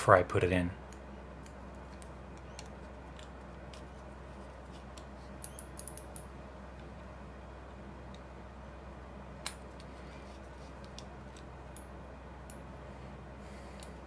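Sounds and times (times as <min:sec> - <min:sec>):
steady low hum: 0:00.0 - 0:14.0
small metal parts clicking: 0:04.7 - 0:06.3.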